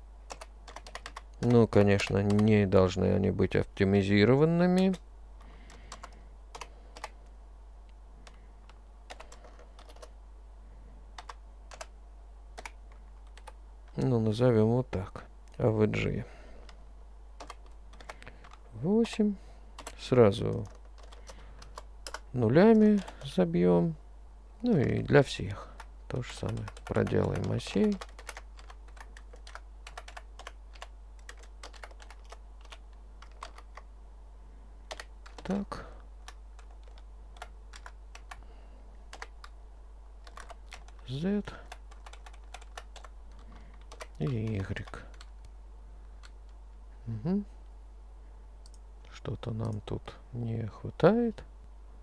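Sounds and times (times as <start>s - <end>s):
steady low hum: 0.0s - 52.0s
computer keyboard key clicks: 0.3s - 2.5s.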